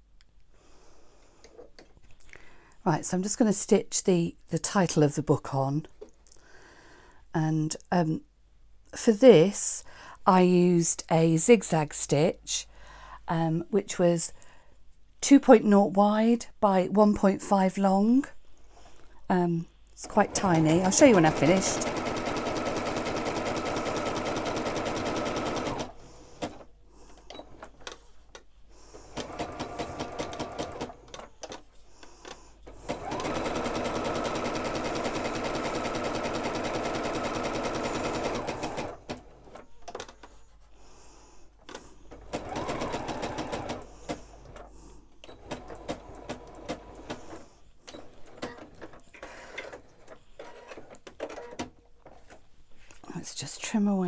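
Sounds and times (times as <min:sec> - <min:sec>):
sewing machine stitching: 0:20.0 - 0:26.7, 0:29.0 - 0:31.7, 0:32.6 - 0:40.3, 0:42.1 - 0:52.4.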